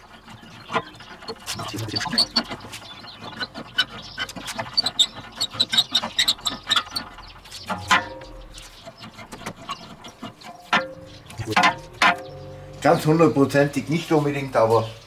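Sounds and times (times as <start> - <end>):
metal level knocking on steel: 0.0 - 13.2
short high squeaks: 0.7 - 11.6.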